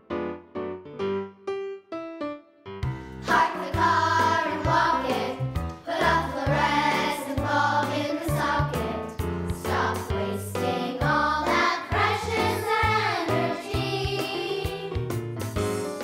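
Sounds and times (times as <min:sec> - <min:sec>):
instrumental accompaniment: 0:00.0 - 0:16.0
children's choir singing: 0:03.2 - 0:15.0.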